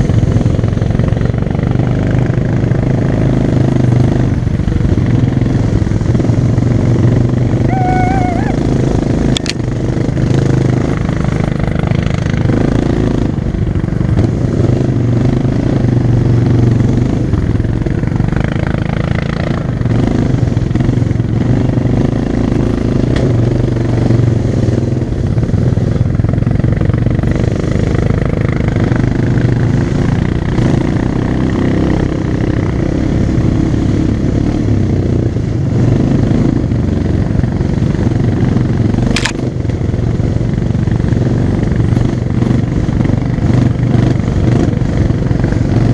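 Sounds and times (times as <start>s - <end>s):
atv engine running: 0.0s - 45.9s
sharp click: 39.1s - 39.5s.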